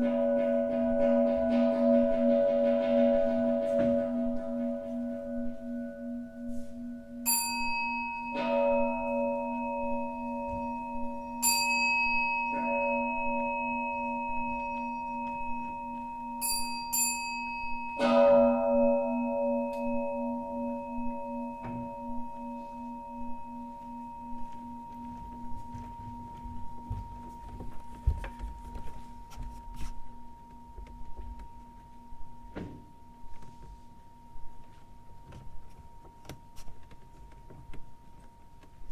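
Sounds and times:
higher bright bowl strikes: 0.0 - 27.0
singing bowls ringing: 0.0 - 38.9.

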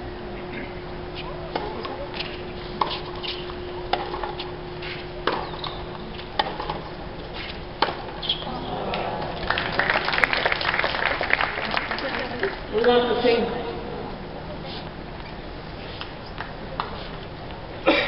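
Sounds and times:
tennis ball hit by rackets: 5.2 - 5.7, 6.4 - 6.8, 7.8 - 8.2
spectators clapping: 8.8 - 13.0.

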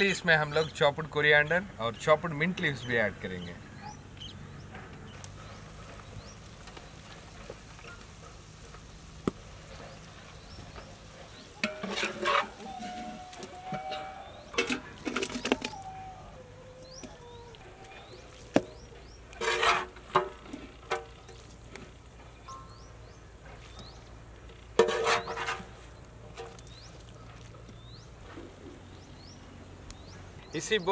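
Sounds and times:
metal spatula scraping pot: 11.3 - 15.7, 19.4 - 21.1, 24.8 - 25.8.

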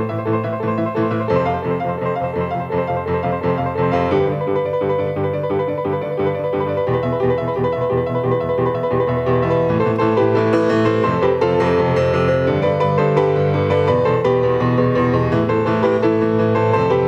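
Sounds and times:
grand piano playing: 0.0 - 17.0.

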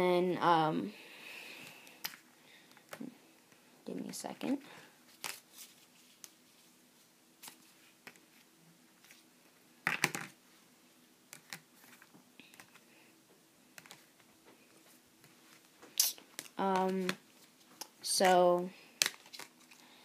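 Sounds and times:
faint steady hum: 0.0 - 20.0
cards and plastic cases clicking: 9.8 - 10.4, 11.3 - 12.8, 13.8 - 14.1, 17.8 - 19.8.

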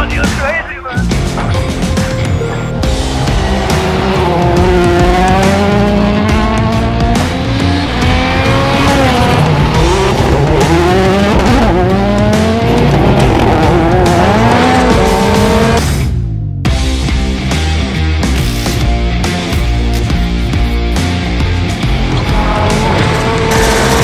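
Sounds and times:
loud background music: 0.0 - 24.0
rally car engine revving: 2.6 - 16.0, 20.4 - 24.0.

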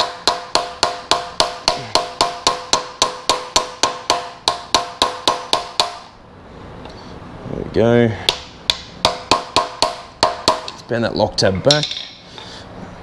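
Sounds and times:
hammer striking metal bar: 0.0 - 6.2, 8.3 - 10.8.

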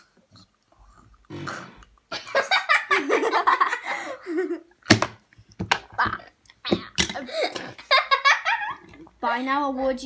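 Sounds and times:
girls laughing: 2.1 - 4.7, 7.2 - 9.0.

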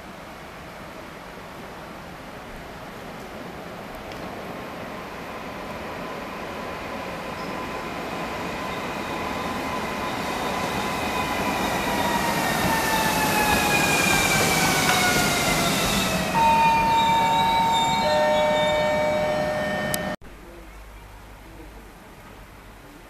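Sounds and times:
wheel and rail noise: 0.0 - 20.2
train motor whine: 6.9 - 20.2
steady electronic tone: 16.3 - 20.2.

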